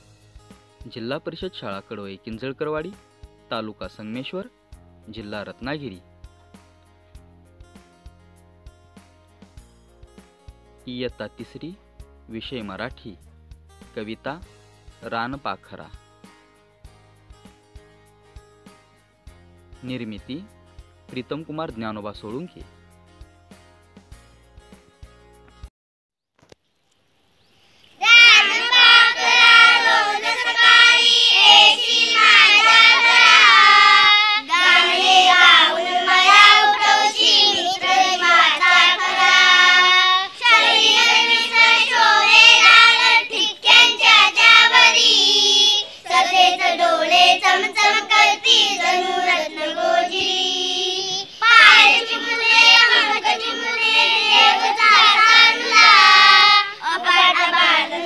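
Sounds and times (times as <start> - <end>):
children singing together: 28.0 - 58.0.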